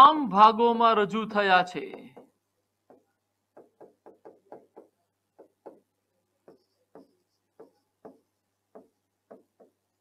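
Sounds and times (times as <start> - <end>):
pen tapping on writing board: 1.9 - 10.0
pen writing strokes: 2.0 - 10.0.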